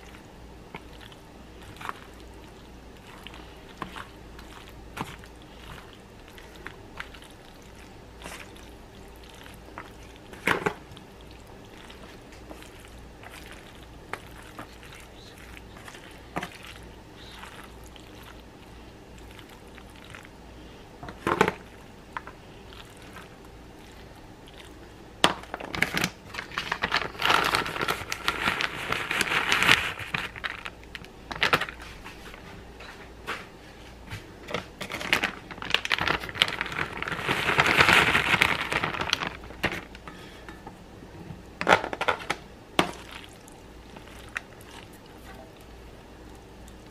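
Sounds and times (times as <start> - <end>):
foil crinkling and crackling: 0.0 - 20.3, 25.4 - 32.4, 34.8 - 40.4.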